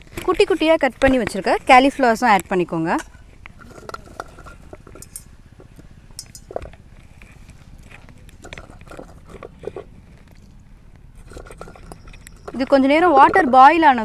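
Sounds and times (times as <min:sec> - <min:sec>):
steel bowl clinking: 0:02.9 - 0:05.4, 0:06.1 - 0:06.7.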